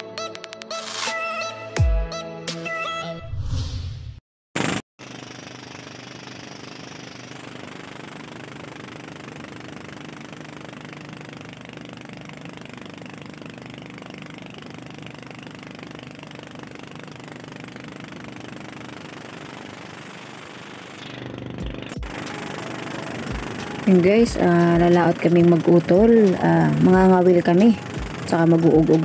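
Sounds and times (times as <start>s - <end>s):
boat motor running: 5.0s - 29.0s.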